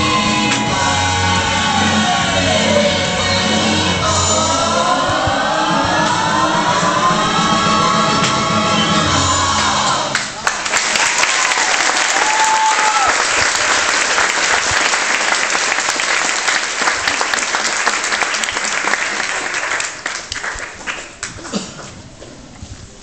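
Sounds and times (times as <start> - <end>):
audience applauding: 10.1 - 22.0.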